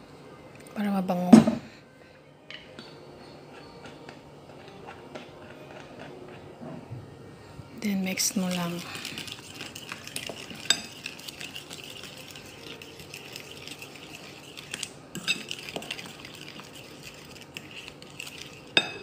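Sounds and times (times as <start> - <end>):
fork stirring batter in metal bowl: 8.0 - 19.0
fork clinking against bowl: 8.4 - 19.0.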